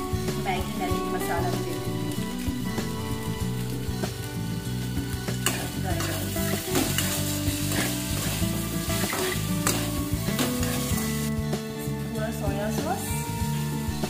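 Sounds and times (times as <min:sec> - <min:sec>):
vegetables sizzling in hot oil: 0:00.0 - 0:14.0
spatula scraping in a wok: 0:05.3 - 0:11.3.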